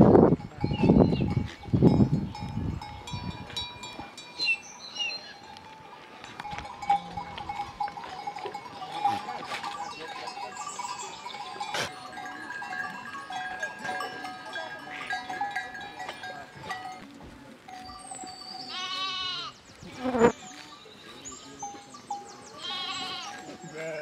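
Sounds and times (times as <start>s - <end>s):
animal bells ringing: 0.0s - 24.0s
sheep bleating: 18.7s - 19.6s, 22.6s - 24.0s.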